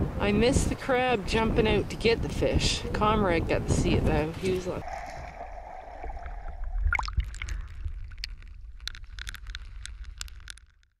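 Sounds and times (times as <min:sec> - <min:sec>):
water sloshing and splashing: 0:04.4 - 0:10.5
splashes and drips: 0:04.8 - 0:10.7.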